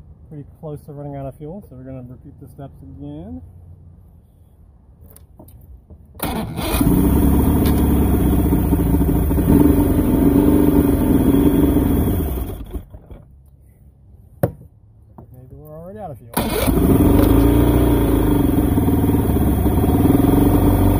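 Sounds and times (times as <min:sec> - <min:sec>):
outboard engine cranking and running: 0:06.2 - 0:13.3, 0:16.4 - 0:20.9.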